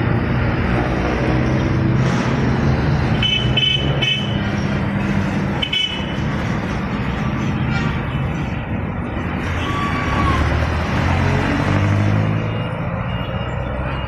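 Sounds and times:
truck engine passing: 0:00.0 - 0:03.2, 0:03.8 - 0:14.0
road traffic passing: 0:00.0 - 0:14.0
vehicle horn toots: 0:03.2 - 0:04.4.

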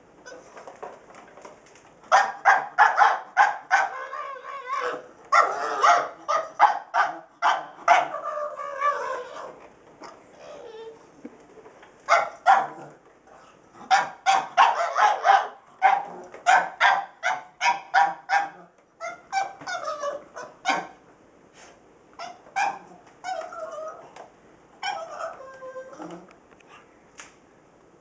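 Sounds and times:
dog barking sharply: 0:02.1 - 0:03.9, 0:13.9 - 0:18.6, 0:20.6 - 0:21.0.

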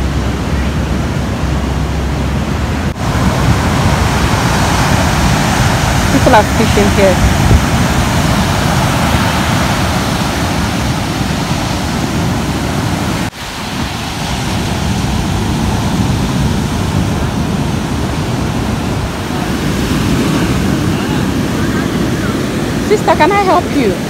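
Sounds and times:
ocean surf breaking on beach: 0:00.0 - 0:24.0.

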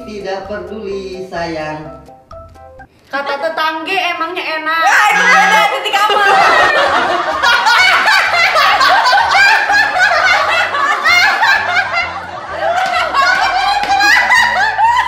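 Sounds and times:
quiet background music: 0:00.0 - 0:15.0
women laughing: 0:05.1 - 0:15.0.

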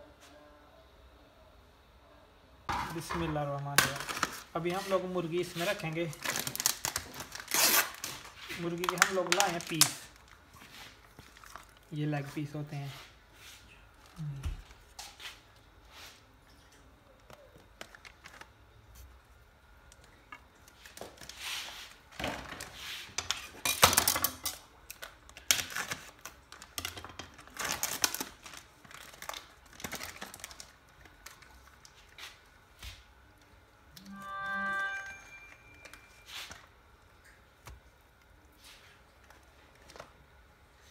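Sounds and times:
plastic film crinkling and tearing: 0:03.7 - 0:12.5, 0:22.6 - 0:32.4.

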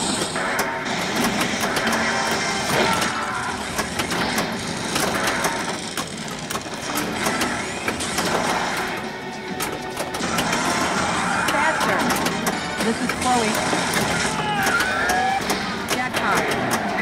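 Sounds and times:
mechanical din: 0:00.0 - 0:17.0
pinball rolling and clattering: 0:00.0 - 0:17.0
pinball switches clicking: 0:00.0 - 0:17.0.

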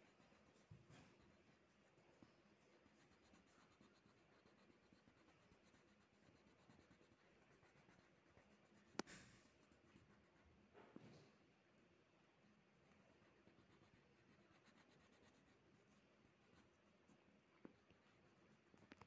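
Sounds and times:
pen scratching on paper: 0:00.0 - 0:10.5, 0:13.3 - 0:16.8.

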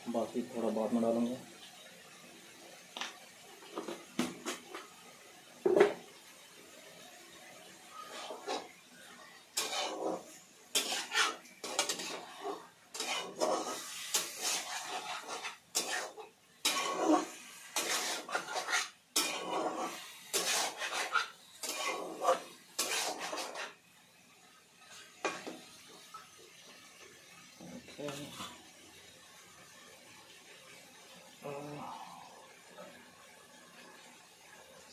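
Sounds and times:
utensil scraping in a pan: 0:07.7 - 0:26.3.

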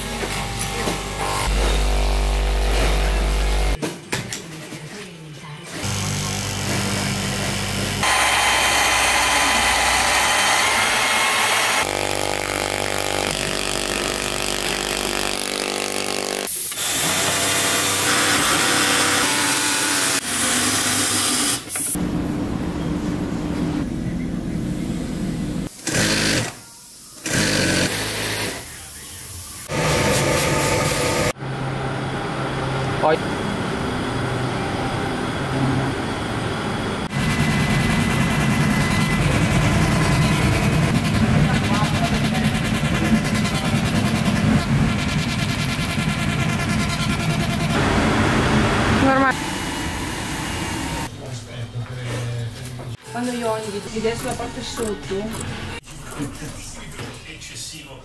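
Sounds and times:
electric cloth-cutting machine: 0:00.0 - 0:03.8, 0:05.8 - 0:22.0, 0:25.8 - 0:26.6, 0:27.2 - 0:28.6, 0:29.7 - 0:32.8, 0:33.5 - 0:51.1
industrial sewing machine running: 0:05.8 - 0:16.0.

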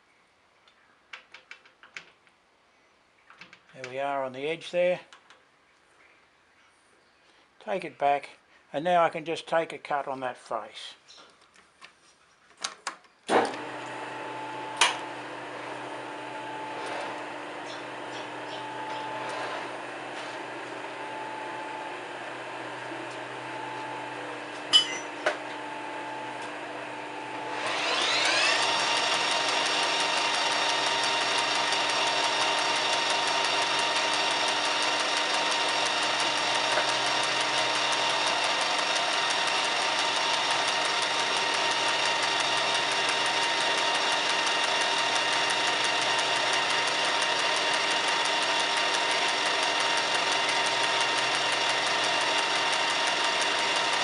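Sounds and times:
metal lathe running: 0:13.6 - 0:54.0.

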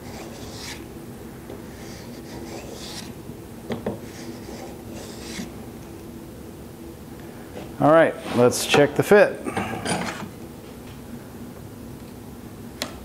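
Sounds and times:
hand plane shaving wood: 0:00.0 - 0:00.8, 0:01.9 - 0:03.1.

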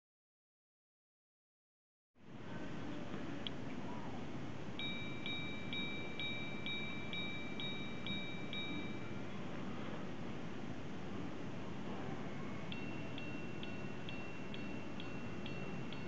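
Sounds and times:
hammer striking gong chime: 0:04.8 - 0:09.2, 0:12.7 - 0:16.0.

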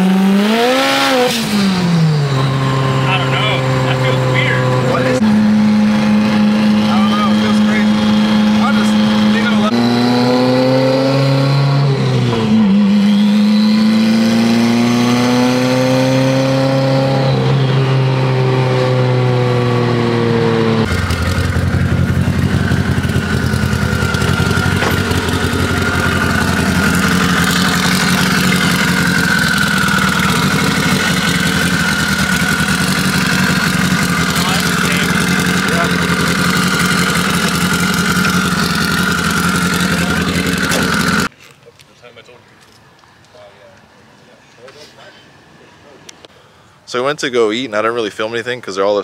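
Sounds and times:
car engine from inside cabin: 0:00.4 - 0:41.3
rough engine idle: 0:20.9 - 0:41.3.

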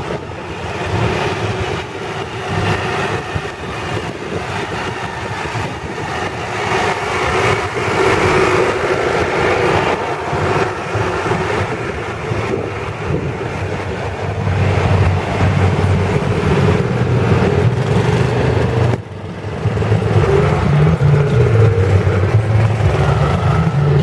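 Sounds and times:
tractor engines driving past: 0:00.0 - 0:24.0.

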